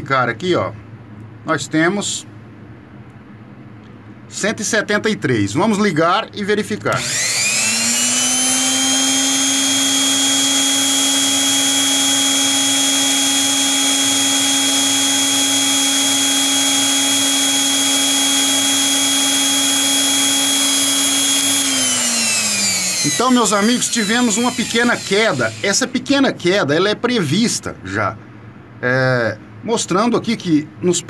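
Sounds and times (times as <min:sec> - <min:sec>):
electric hand planer motor whine: 0:07.0 - 0:25.9.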